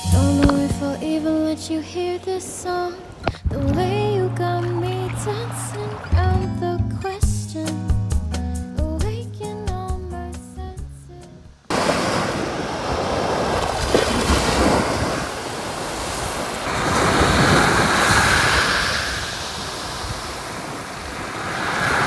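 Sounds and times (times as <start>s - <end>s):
small waves breaking on sand: 11.7s - 22.0s
wind buffeting microphone: 12.1s - 22.0s.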